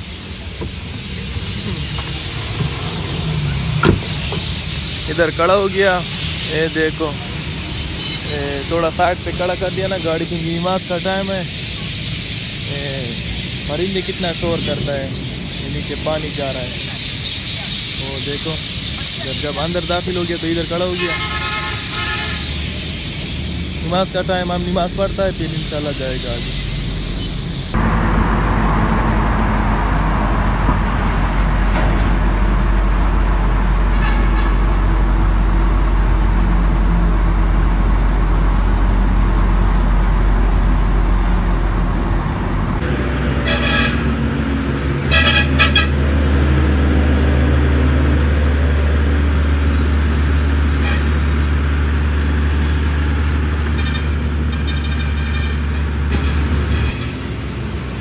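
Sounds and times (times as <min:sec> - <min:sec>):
truck engine droning: 0:00.0 - 0:58.0
horns tooting: 0:00.8 - 0:11.3, 0:16.0 - 0:27.5, 0:33.8 - 0:37.4, 0:42.8 - 0:46.4, 0:50.6 - 0:51.5.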